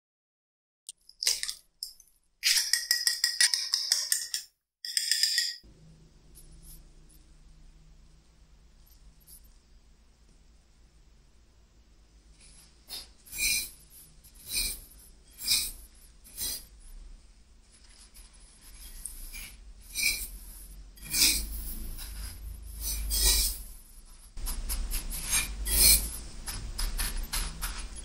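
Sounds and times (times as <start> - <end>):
breadcrumbs pressed and rubbed by hand: 12.3 - 28.0.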